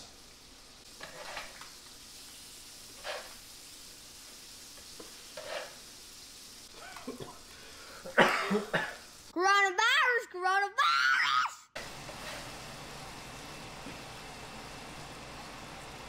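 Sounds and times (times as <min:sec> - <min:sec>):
fish sizzling on a griddle: 0:00.0 - 0:09.4, 0:11.8 - 0:16.0
scrapes and knocks on griddle: 0:00.9 - 0:01.8, 0:02.9 - 0:03.5, 0:04.8 - 0:05.9, 0:12.0 - 0:12.6.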